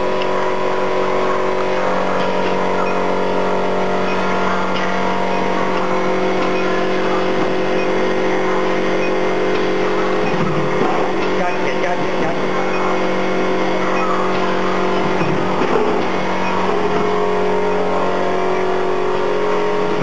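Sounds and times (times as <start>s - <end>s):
factory noise: 0.0s - 20.0s
forging machine humming: 0.0s - 20.0s.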